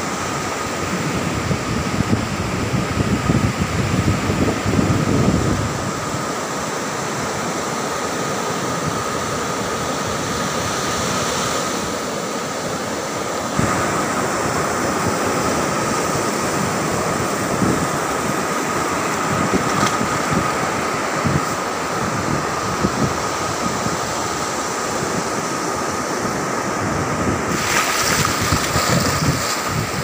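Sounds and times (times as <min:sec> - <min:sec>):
wind on microphone: 0:00.0 - 0:06.4, 0:13.5 - 0:30.0
sea surf washing onto beach: 0:00.0 - 0:30.0.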